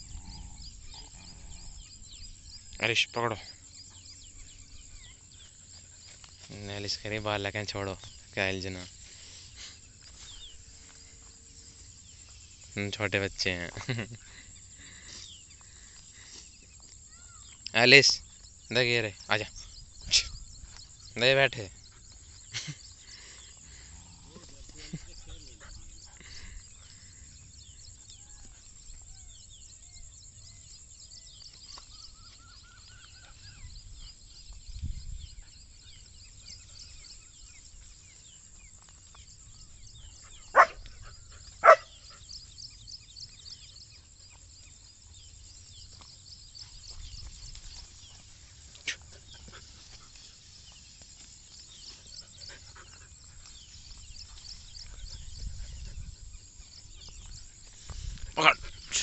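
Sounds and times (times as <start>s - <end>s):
puppy barking: 40.5s - 40.8s, 41.6s - 41.9s.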